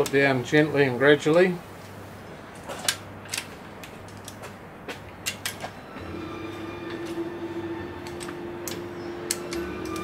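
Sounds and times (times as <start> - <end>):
steady hum: 1.6 - 10.0.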